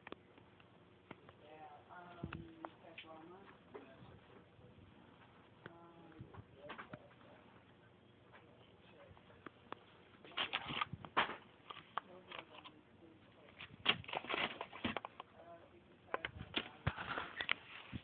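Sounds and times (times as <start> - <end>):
plastic blister packs crinkling: 10.3 - 12.7, 13.4 - 15.2.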